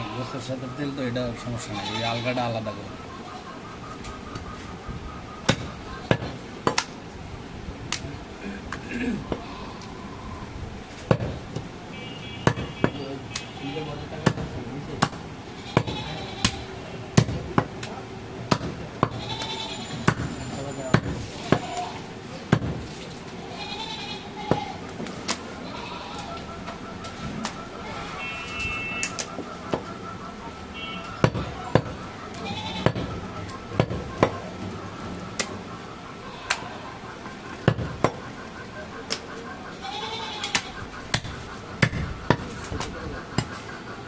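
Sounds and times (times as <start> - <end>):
market voices: 0.0 - 44.0
cleaver chopping meat on wood: 12.4 - 13.0, 14.2 - 15.2, 33.8 - 34.4, 40.5 - 42.5.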